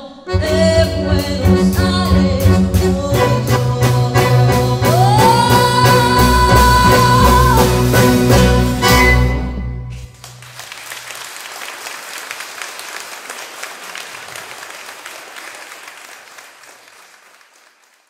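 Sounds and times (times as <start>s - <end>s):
audience applause: 10.0s - 18.0s.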